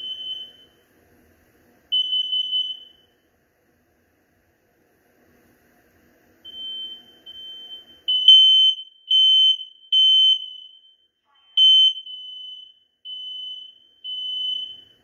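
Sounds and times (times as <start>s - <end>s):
fainter alarm beeps: 0.0s - 0.8s, 2.0s - 3.1s, 6.5s - 15.0s
smoke alarm beeping: 0.0s - 0.8s, 1.9s - 3.1s, 6.4s - 15.0s.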